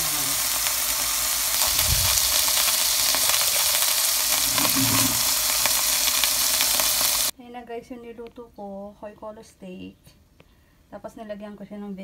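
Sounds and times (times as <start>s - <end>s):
beef sizzling in frying pan: 0.0s - 7.3s.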